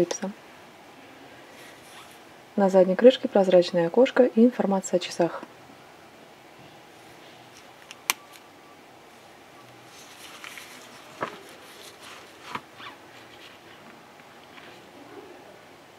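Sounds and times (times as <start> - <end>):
fabric rustling: 1.5 - 2.2, 9.8 - 14.9.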